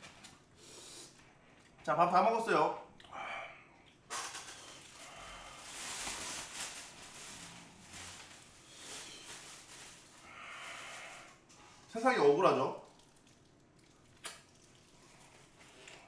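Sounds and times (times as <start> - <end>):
plastic crinkling and rustling: 4.1 - 11.5.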